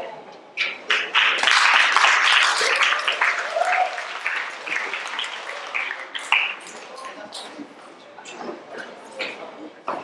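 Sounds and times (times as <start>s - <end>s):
audience applause: 0.9s - 7.2s.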